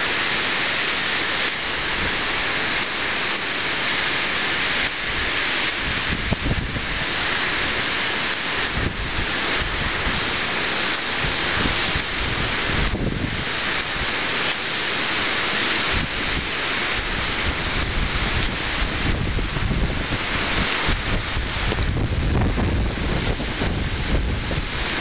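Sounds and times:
steady rain: 0.0s - 25.0s
wind buffeting microphone: 5.0s - 7.6s, 8.6s - 10.4s, 11.2s - 14.1s, 15.8s - 25.0s.

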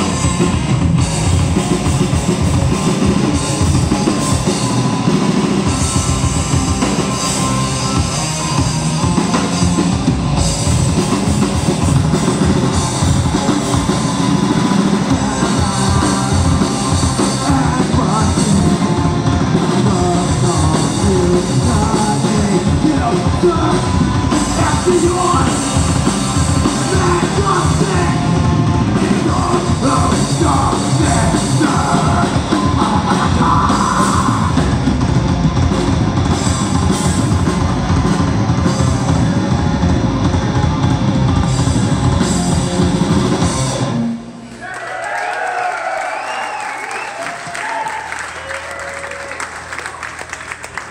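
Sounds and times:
drum kit: 0.0s - 44.3s
electric guitars: 0.0s - 44.5s
lead vocal singing: 14.8s - 34.7s.

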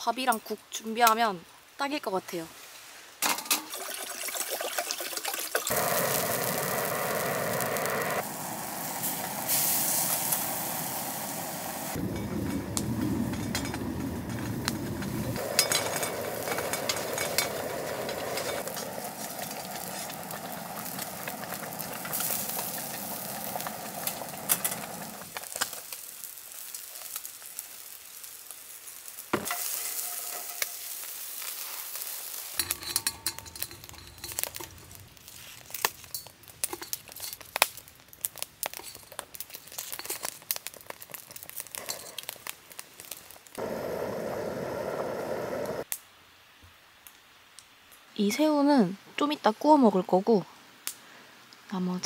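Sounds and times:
fish sizzling on a grill: 3.3s - 45.9s
water pouring into a pot: 3.4s - 12.0s, 15.4s - 25.4s
pot bubbling: 3.4s - 25.9s, 38.3s - 45.9s.

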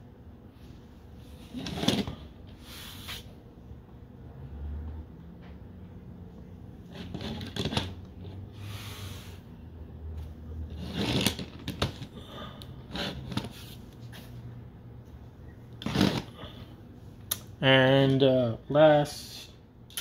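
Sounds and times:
plastic toys scraping and knocking: 1.4s - 2.2s, 6.9s - 8.4s, 10.7s - 12.1s, 12.9s - 13.7s, 15.8s - 16.3s.

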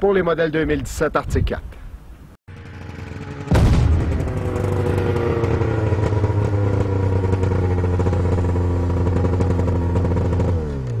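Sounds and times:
engine running at high speed: 2.5s - 11.0s.

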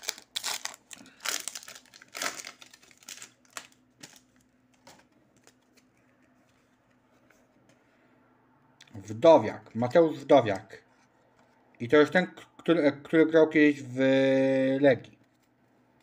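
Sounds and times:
foil wrapper tearing and crinkling: 0.0s - 4.3s.

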